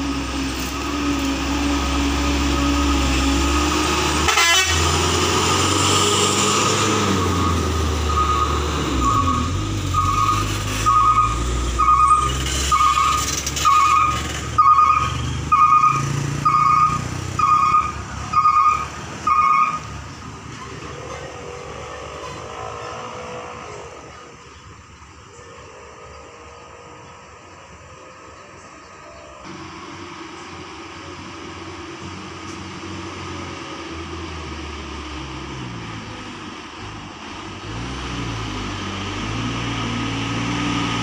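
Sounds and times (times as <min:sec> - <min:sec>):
diesel truck engine under load: 0:00.0 - 0:41.0
traffic noise: 0:00.0 - 0:41.0
two-tone electronic beep: 0:07.3 - 0:13.2.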